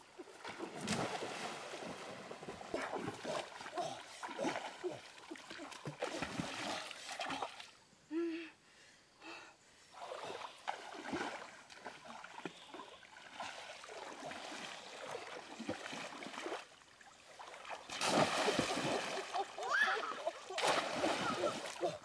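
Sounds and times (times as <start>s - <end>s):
river water splashing: 0.0s - 7.9s, 9.9s - 22.0s.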